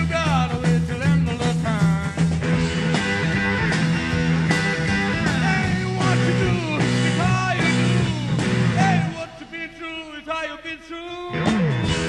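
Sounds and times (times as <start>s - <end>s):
drum kit beat: 0.0s - 9.2s, 11.3s - 12.0s
electric bass: 0.0s - 9.2s, 11.3s - 12.0s
sliding guitar notes: 2.4s - 9.2s.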